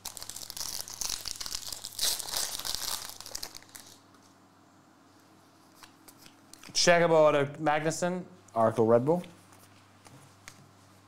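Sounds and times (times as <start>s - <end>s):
foil wrapper crinkling: 0.0s - 4.3s.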